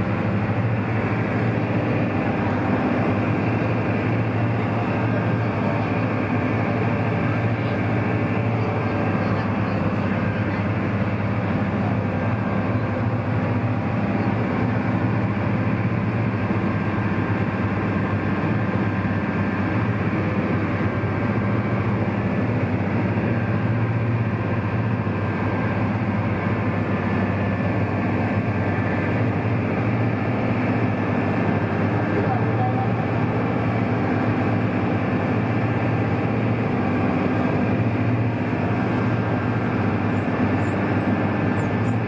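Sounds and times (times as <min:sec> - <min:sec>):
boat engine droning: 0:00.0 - 0:42.0
water rushing in wake: 0:00.0 - 0:42.0.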